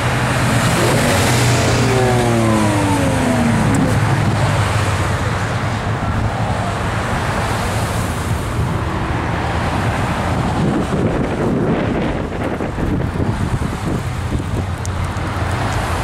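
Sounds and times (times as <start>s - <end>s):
car engines running at low speed: 0.0s - 16.0s
engine pitch falling: 0.5s - 5.2s.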